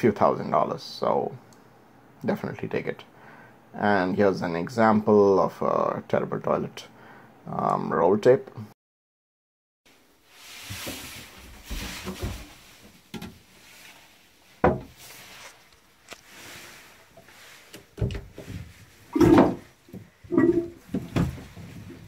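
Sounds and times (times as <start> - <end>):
handling knocks and rubbing: 10.4 - 22.0.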